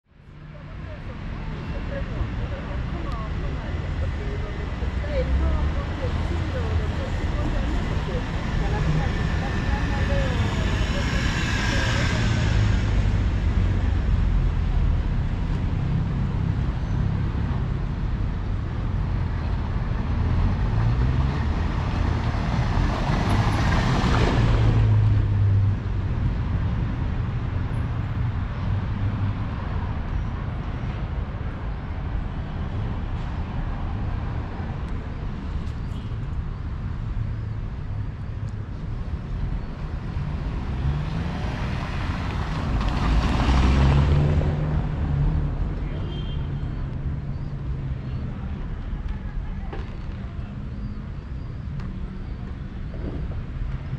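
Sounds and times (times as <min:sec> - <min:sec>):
street traffic rumble: 0:00.1 - 0:53.9
vehicle passing close: 0:40.2 - 0:45.6.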